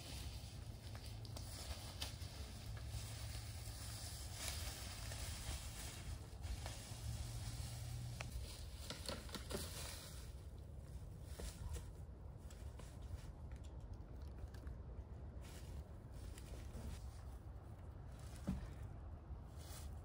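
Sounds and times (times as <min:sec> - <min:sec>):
footsteps through dry leaves: 0:00.0 - 0:13.1, 0:19.4 - 0:20.0.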